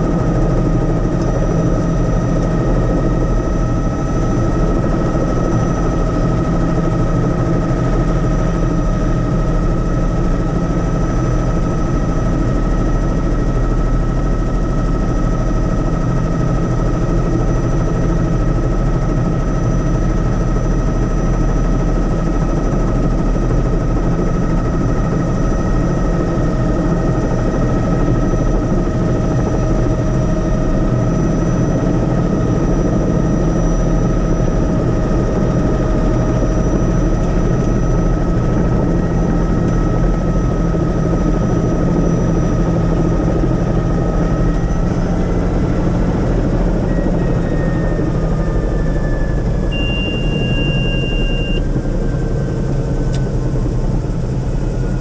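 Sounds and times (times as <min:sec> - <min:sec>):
helicopter rotor and engine rumble: 0:00.0 - 0:55.0
high-pitched whine: 0:35.2 - 0:55.0.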